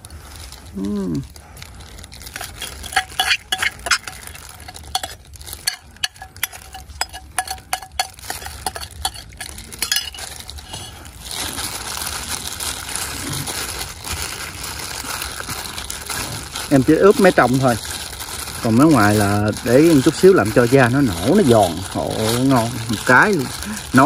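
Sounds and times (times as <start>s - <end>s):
gloved hands rubbing meat: 0.0s - 24.0s
metal utensil scraping ceramic bowl: 2.4s - 10.9s.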